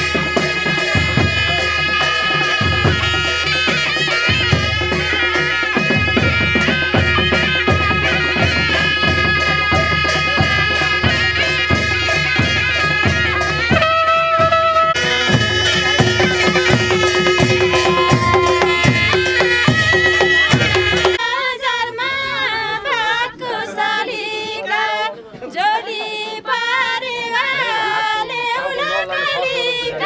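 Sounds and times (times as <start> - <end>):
drums and cymbals: 0.0 - 21.2
reed pipe melody: 0.0 - 21.2.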